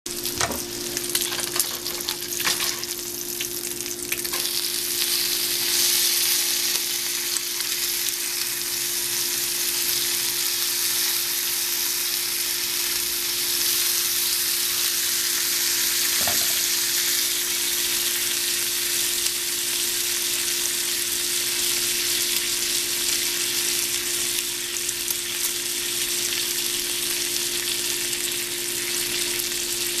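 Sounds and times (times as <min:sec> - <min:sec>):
bacon sizzling in a frying pan: 0:00.1 - 0:30.0.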